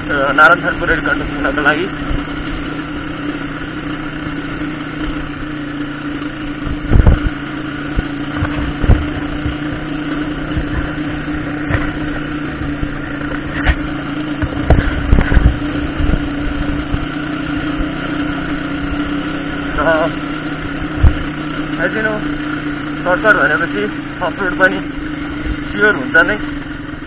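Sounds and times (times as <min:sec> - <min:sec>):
motorcycle engine running: 0:00.0 - 0:27.0
motorcycle knocking over bumps: 0:08.0 - 0:12.2, 0:12.8 - 0:16.3.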